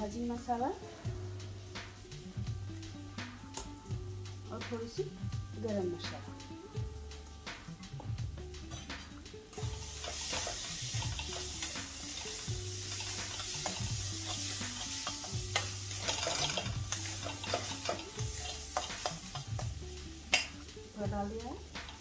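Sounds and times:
food sizzling in a pan: 0.0 - 22.0
soft background music: 0.0 - 22.0
spoon scraping a pan: 8.7 - 20.7.

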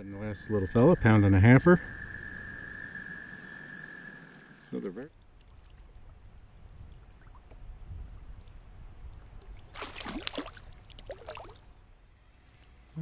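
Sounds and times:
wind and water rumble: 0.0 - 12.3
fish splashing at surface: 9.7 - 11.6.

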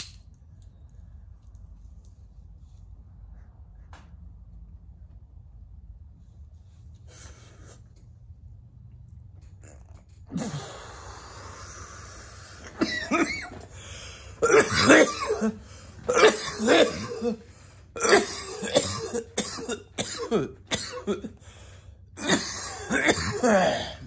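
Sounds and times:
man coughing hard: 12.7 - 13.7, 14.4 - 21.4, 22.2 - 24.0
throat clearing: 22.2 - 24.0.

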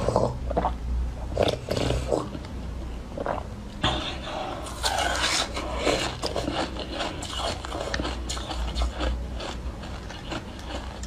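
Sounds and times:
ice being chewed crunching: 4.6 - 11.0.

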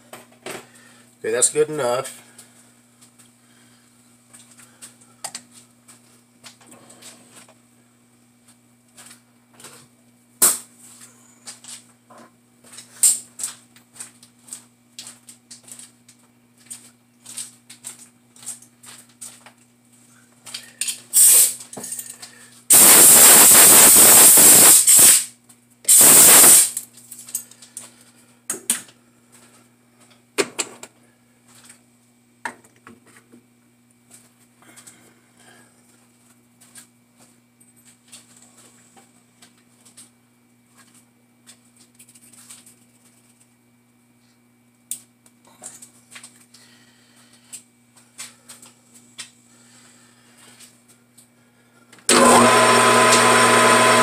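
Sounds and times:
loud hissing blasts: 21.2 - 21.5, 22.7 - 25.3, 25.9 - 26.8.

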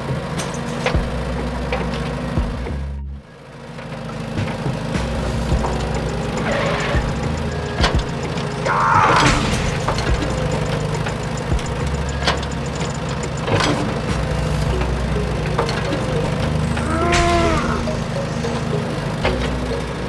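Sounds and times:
short scraping rasps: 5.0 - 14.8
toy excavator idling hum: 9.9 - 20.0.

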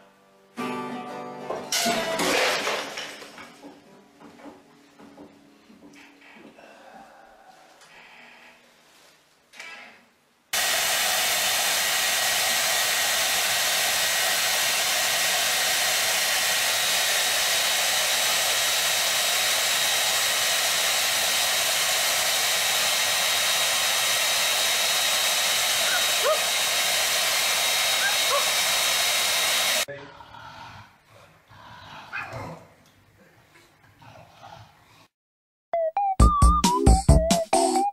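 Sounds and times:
hair dryer blowing: 10.6 - 29.9.

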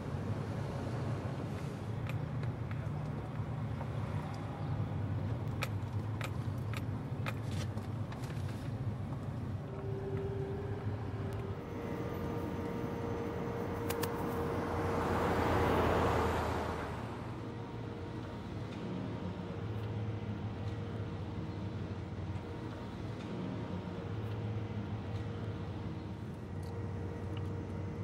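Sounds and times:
truck engine and road rumble: 0.0 - 28.0
truck passing by: 8.4 - 28.0.

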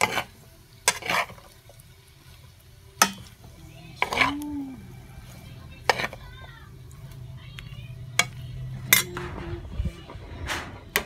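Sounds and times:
spoon scraping cookware: 0.0 - 1.6, 4.0 - 4.4, 5.2 - 6.3, 8.2 - 11.0
low hum: 6.7 - 11.0.

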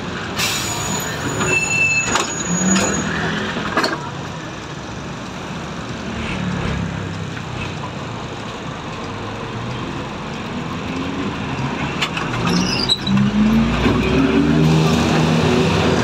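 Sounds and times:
high squeak: 0.4 - 3.3, 12.4 - 13.2
bus engine running: 2.7 - 12.4.

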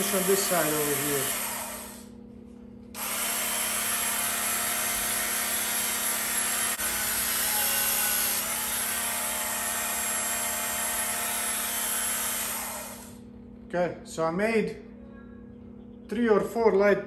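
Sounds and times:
belt sharpener grinding steel: 0.0 - 2.1, 3.0 - 13.2.

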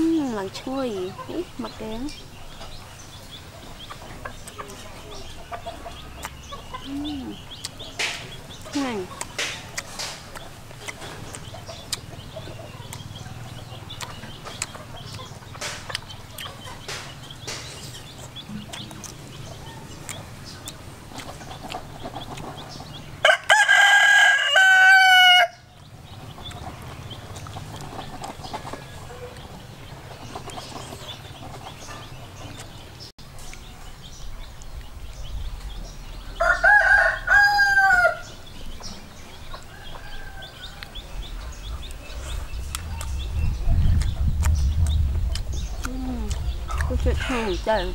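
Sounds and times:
rooster crowing: 23.2 - 25.7, 36.4 - 38.4, 39.7 - 41.2.

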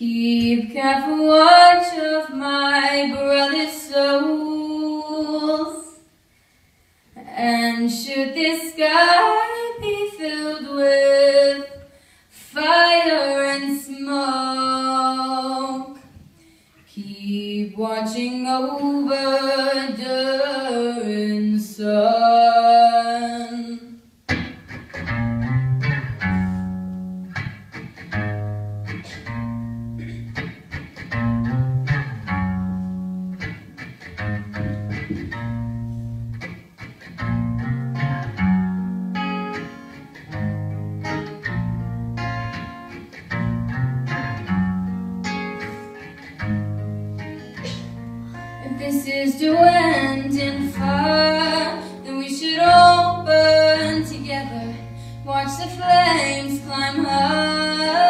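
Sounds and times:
acoustic guitars strumming: 24.3 - 58.0
person singing unaccompanied: 48.4 - 58.0.

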